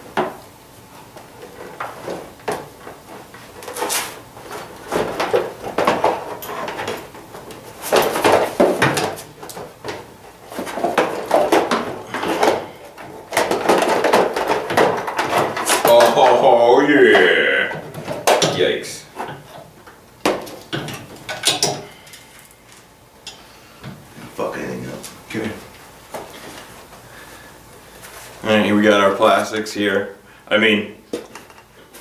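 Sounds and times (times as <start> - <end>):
plastic panels knocking and rattling: 1.4 - 16.6, 17.8 - 21.9.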